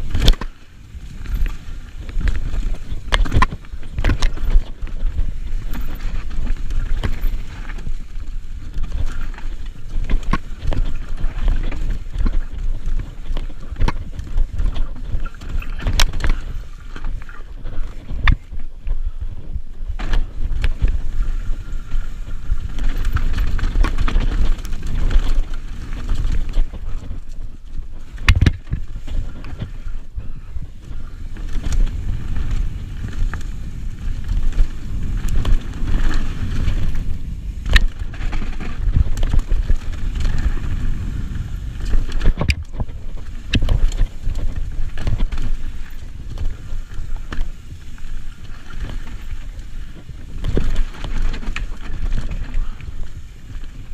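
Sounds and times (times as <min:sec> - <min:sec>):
wheels knocking on rocks: 0:00.0 - 0:18.9, 0:19.9 - 0:53.9
bike rolling and rattling: 0:00.0 - 0:53.9
wind on microphone: 0:00.0 - 0:53.9.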